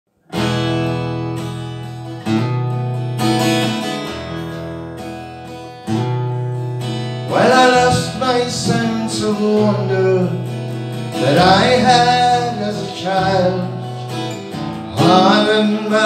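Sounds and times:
acoustic guitar chords strummed: 0:00.2 - 0:16.0
man singing: 0:07.2 - 0:14.3, 0:14.9 - 0:16.0.

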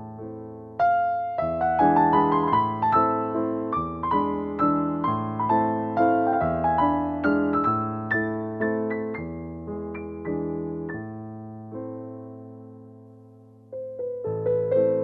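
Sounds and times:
gentle piano melody: 0:00.0 - 0:15.0.

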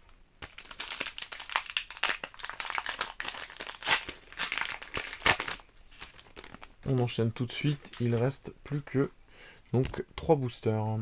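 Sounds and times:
foil wrapper crinkling: 0:00.4 - 0:06.7.

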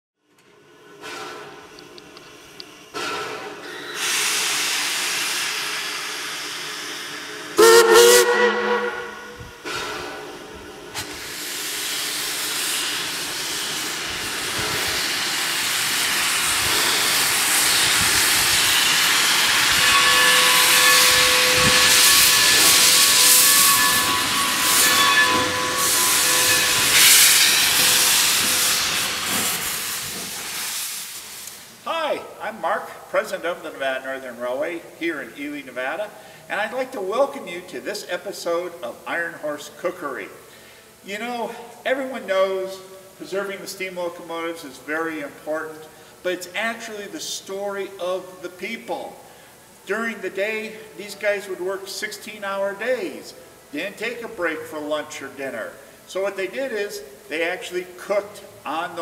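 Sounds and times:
steam locomotive hissing: 0:00.6 - 0:32.6
steam whistle blast: 0:03.0 - 0:10.1, 0:11.0 - 0:30.8
faint steady whistling tone: 0:19.8 - 0:27.0.

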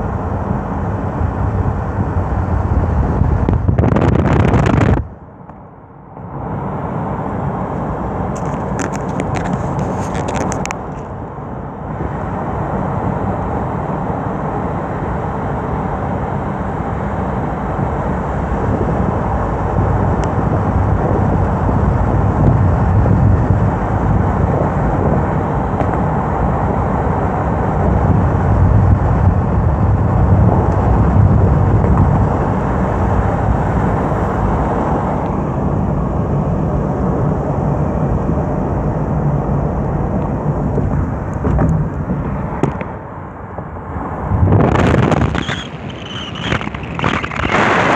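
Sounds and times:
car road and wind noise: 0:00.0 - 0:47.9.

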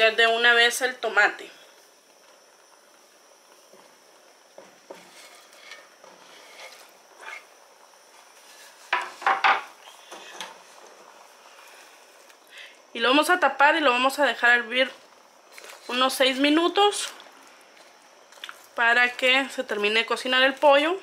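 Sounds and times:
board scraping into pot: 0:04.9 - 0:07.5.

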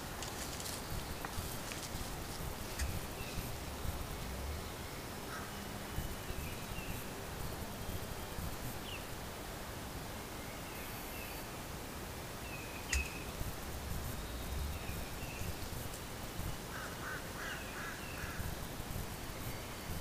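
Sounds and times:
small birds chirping: 0:00.2 - 0:09.2, 0:12.3 - 0:20.0
sharp click: 0:12.9 - 0:13.2.

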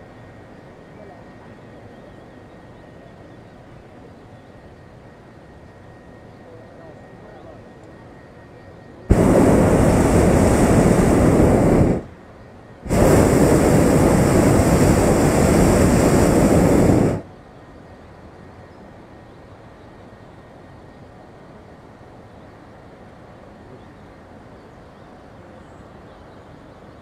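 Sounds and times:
propane burner blasts: 0:09.1 - 0:17.3.

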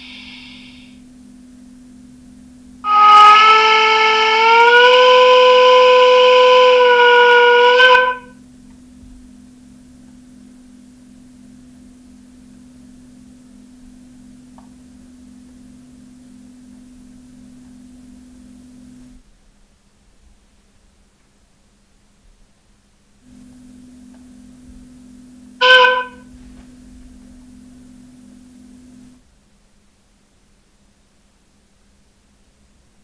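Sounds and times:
model steam whistle through small speaker: 0:00.0 - 0:01.1, 0:02.8 - 0:08.5, 0:25.5 - 0:26.4
faint steady hum: 0:00.0 - 0:33.0.

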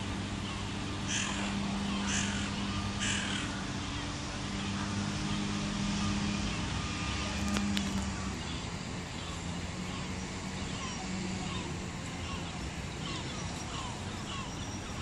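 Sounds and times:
low hum of city traffic: 0:00.0 - 0:15.0
crow cawing: 0:01.1 - 0:03.7.

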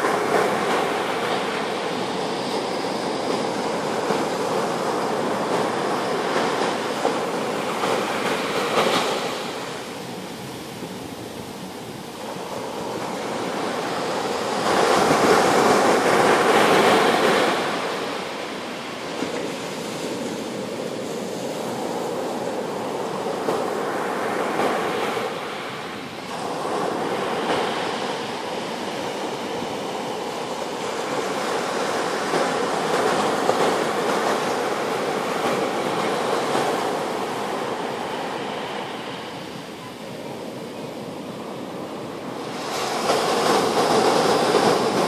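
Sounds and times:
small waves breaking on beach: 0:00.0 - 0:45.0.

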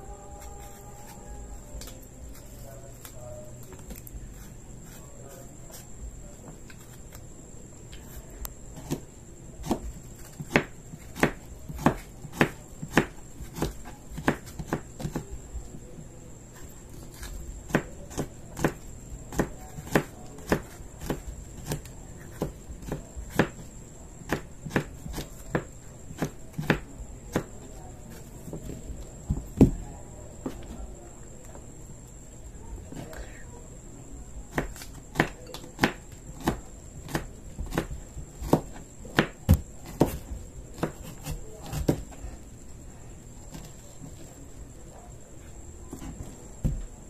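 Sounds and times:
knife chopping on cutting board: 0:09.6 - 0:15.3, 0:17.2 - 0:23.6, 0:24.2 - 0:27.6, 0:34.5 - 0:42.1.

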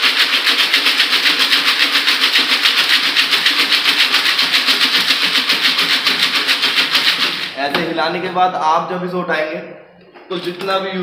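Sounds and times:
pellets rattling in shaken sieve: 0:00.0 - 0:07.7.

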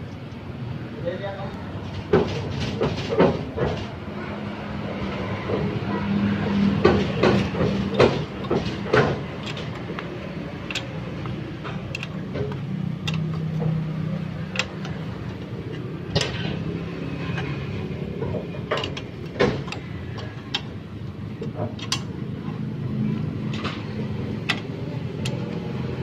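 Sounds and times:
metal clinks on steel studs: 0:17.3 - 0:20.7.

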